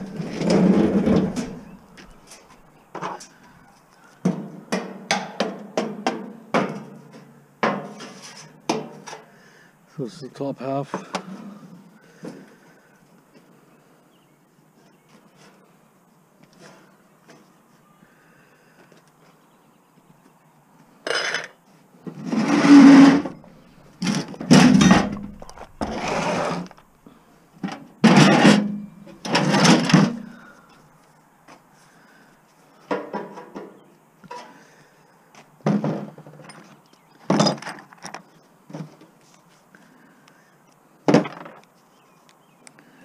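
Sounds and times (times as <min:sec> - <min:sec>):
metal parts clanking and scraping: 0:00.0 - 0:03.3, 0:21.0 - 0:21.6, 0:22.2 - 0:26.9, 0:27.6 - 0:30.4.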